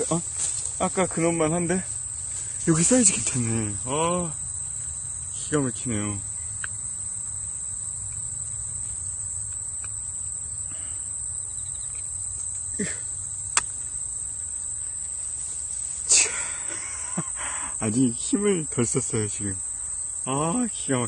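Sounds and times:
insects chirping in grass: 0.0 - 21.0
sharp click: 13.5 - 13.8.

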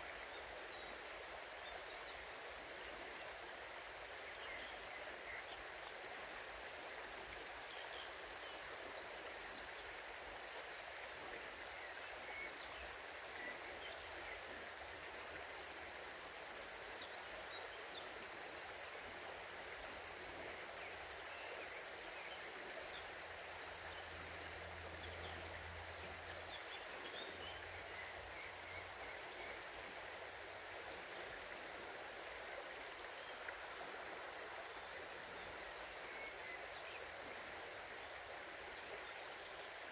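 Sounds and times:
river water flowing: 0.0 - 39.9.

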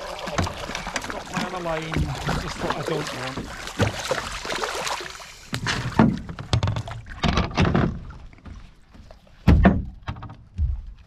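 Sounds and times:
dull knocks on boat: 9.4 - 11.0.

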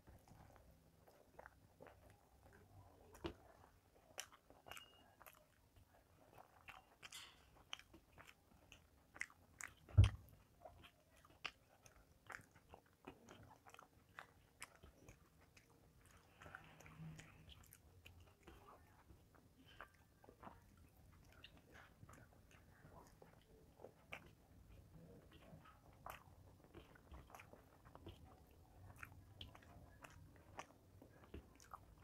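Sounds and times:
person chewing food: 0.0 - 32.0.

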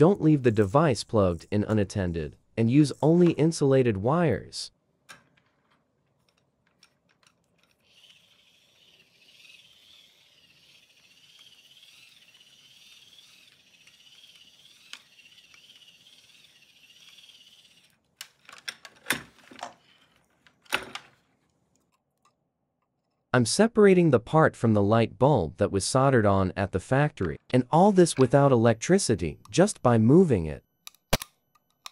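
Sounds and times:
parts clicking and knocking: 5.0 - 9.0, 18.1 - 21.2, 30.9 - 31.9
turntable motor gears whirring: 7.6 - 18.0.

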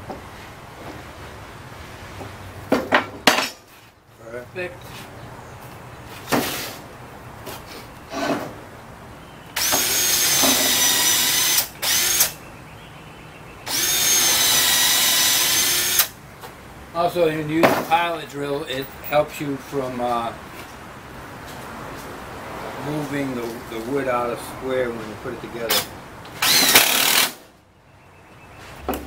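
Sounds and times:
power drill boring into wood: 9.6 - 12.4, 13.7 - 16.1, 25.7 - 27.4.

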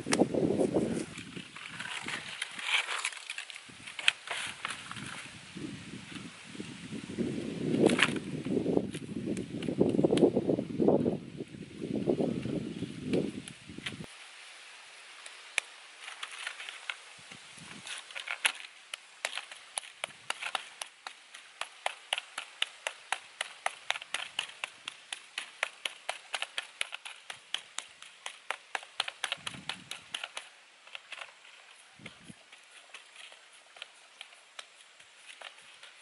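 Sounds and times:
hand slapping wet clay: 18.4 - 31.2.

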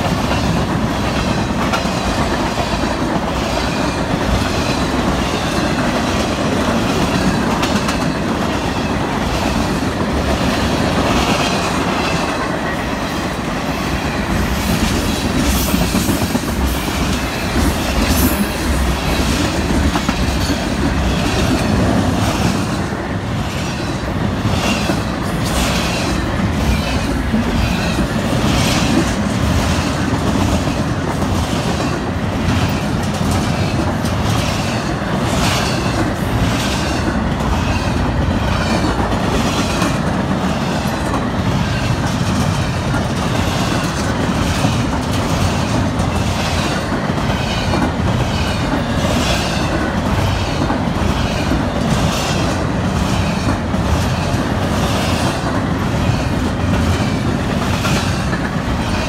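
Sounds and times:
clacking over rail joints: 0.0 - 12.8
train wheels rumbling on rails: 0.0 - 59.0.

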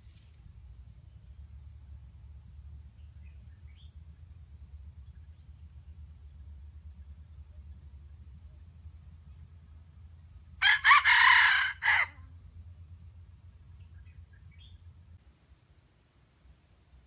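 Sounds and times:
faint low hum: 0.0 - 17.0
rooster crowing: 10.6 - 12.3.

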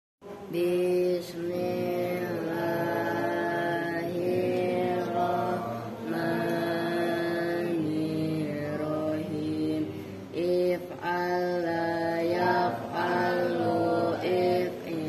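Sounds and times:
boys chanting together: 0.6 - 15.0.

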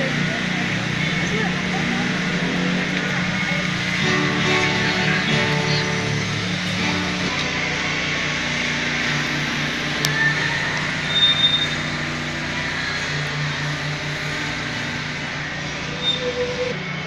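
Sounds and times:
street traffic rushing: 0.0 - 17.0
short high squeal: 10.1 - 12.0, 14.3 - 17.0.

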